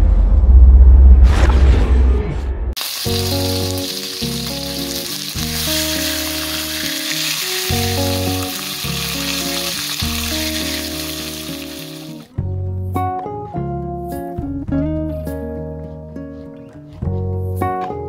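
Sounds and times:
pork sizzling in frying pan: 2.8 - 12.3
background music with bass: 7.7 - 18.0.

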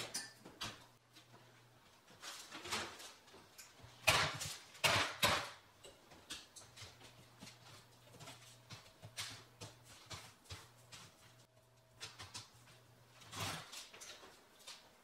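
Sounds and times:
parchment rustling: 0.5 - 15.0.

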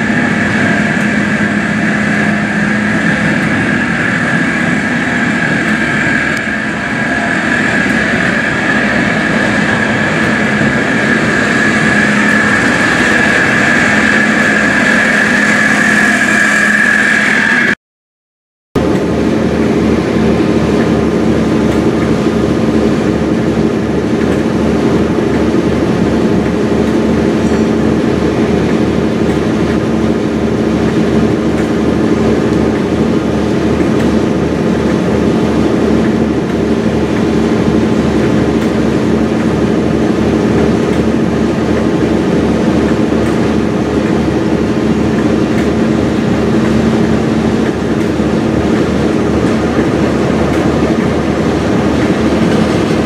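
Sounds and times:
diesel locomotive running: 0.0 - 17.8, 18.8 - 53.0.

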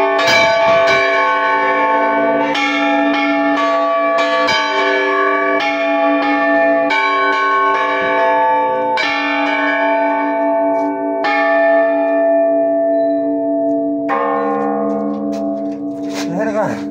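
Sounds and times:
large church bells ringing: 0.0 - 16.9.

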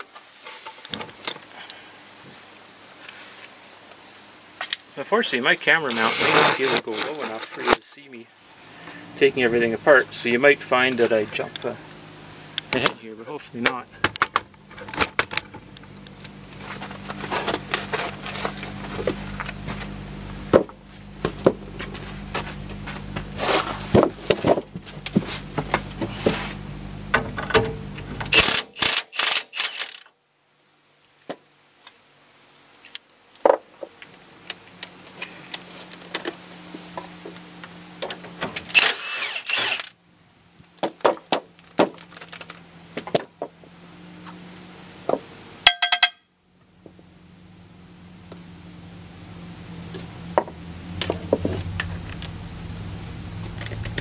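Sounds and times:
impact wrench hammering: 45.7 - 46.2
metal tools clinking: 45.7 - 46.2.

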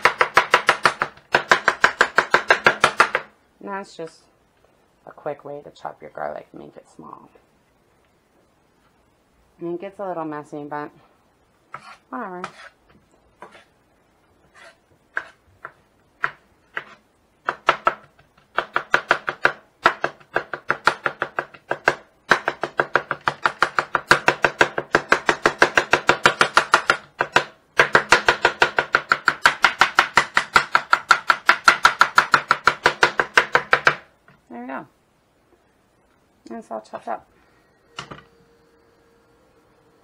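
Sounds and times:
knife chopping on wooden board: 11.7 - 12.7, 13.4 - 13.7, 14.6 - 34.0.

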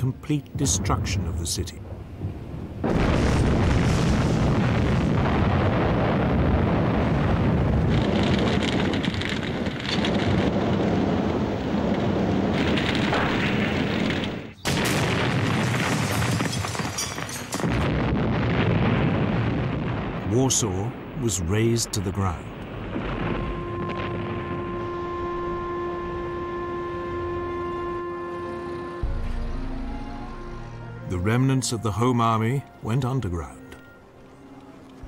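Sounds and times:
rumble of explosions: 0.0 - 30.0
falling debris: 2.8 - 20.3.

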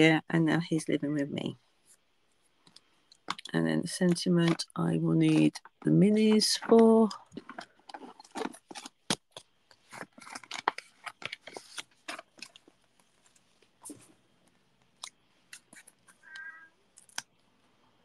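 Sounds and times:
paper rustling: 4.1 - 17.2.

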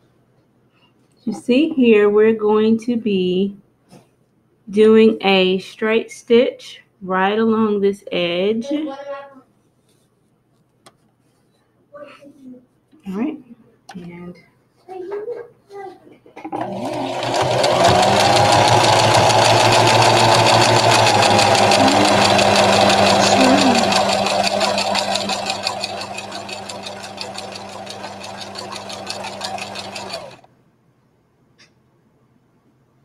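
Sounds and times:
sewing machine motor whine: 16.6 - 30.5
sewing machine needle chatter: 16.6 - 30.5.

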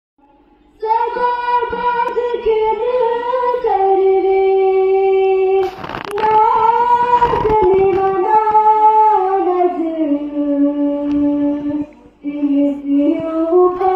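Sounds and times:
person chanting devotional poem: 0.8 - 13.9.

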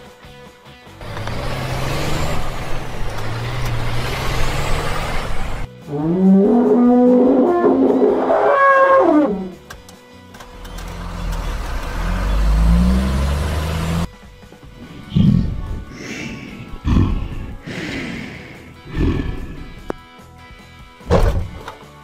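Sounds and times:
background music: 0.0 - 22.0
elephant trumpeting: 5.9 - 9.6.

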